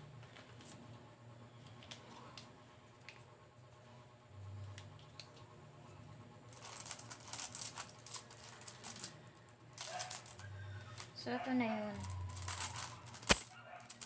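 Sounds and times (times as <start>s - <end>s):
coins clinking in a bowl: 9.8s - 11.1s, 11.9s - 14.0s.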